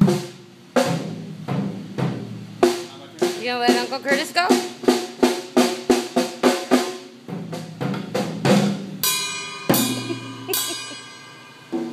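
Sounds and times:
drum hits: 0:00.0 - 0:11.9
cymbal crashes ringing: 0:09.0 - 0:11.9.

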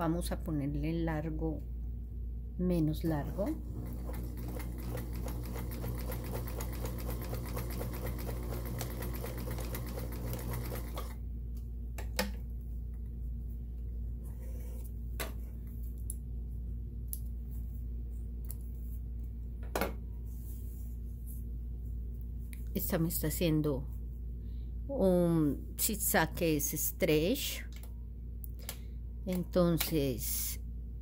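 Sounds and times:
sewing machine needle chatter: 0:03.3 - 0:11.1.

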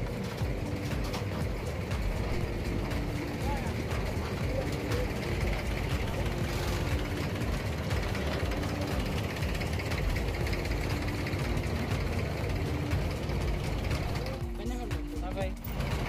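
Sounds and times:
boat diesel engine idling: 0:00.0 - 0:16.0.

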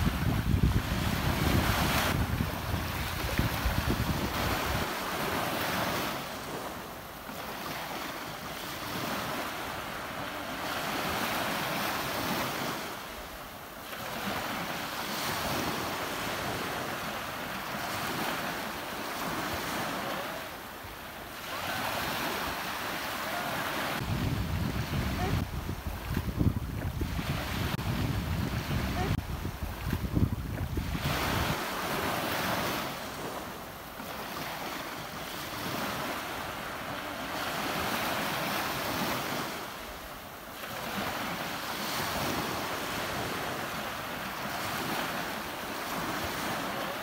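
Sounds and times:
wind rumble on microphone: 0:00.0 - 0:06.8, 0:23.6 - 0:33.6
ocean waves washing in: 0:00.0 - 0:47.0.

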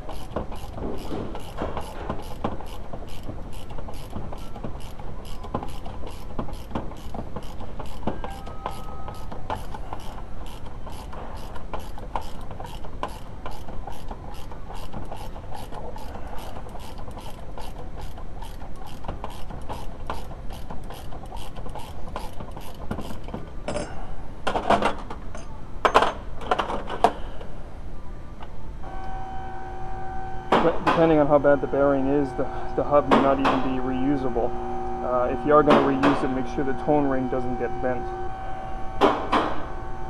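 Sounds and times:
ratchet wrench clicking: 0:00.0 - 0:23.3.

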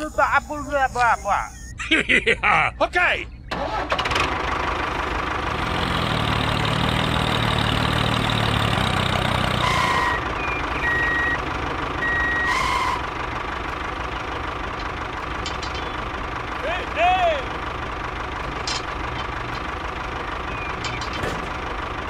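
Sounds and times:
electronic beeps: 0:00.0 - 0:01.8, 0:10.4 - 0:11.4, 0:12.0 - 0:12.5
tractor engine idling: 0:03.3 - 0:22.0.

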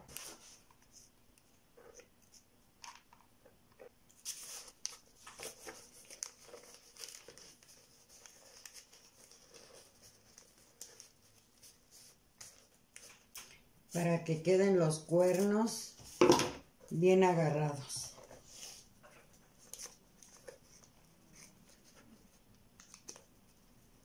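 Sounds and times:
newspaper rustling and crinkling: 0:04.1 - 0:14.0.

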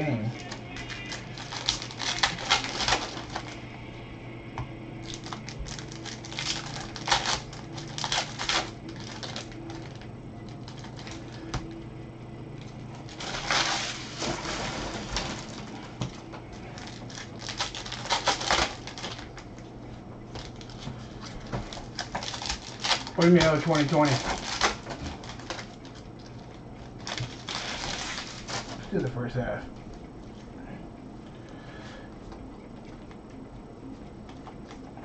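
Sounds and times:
wrappers crinkling and tearing: 0:00.0 - 0:03.6, 0:05.0 - 0:11.8, 0:13.0 - 0:19.7, 0:20.4 - 0:29.0
faint low hum: 0:00.0 - 0:35.0.

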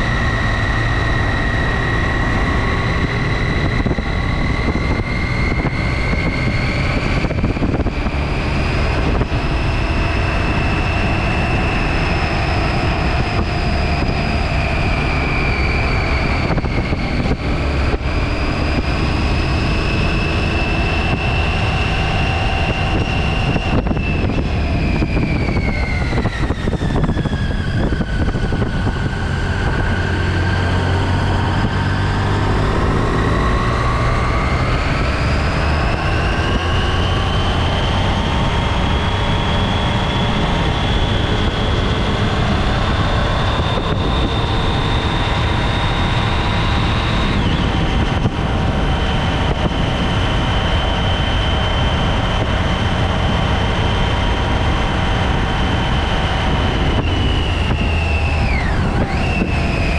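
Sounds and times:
motorcycle engine whine: 0:00.0 - 0:59.9
wind rush: 0:00.0 - 0:59.9.

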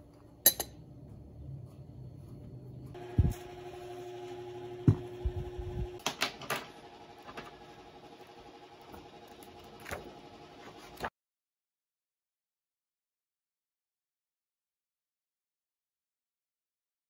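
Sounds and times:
dull knocks on desk: 0:04.9 - 0:05.1
paper and card rustling: 0:09.4 - 0:11.1.

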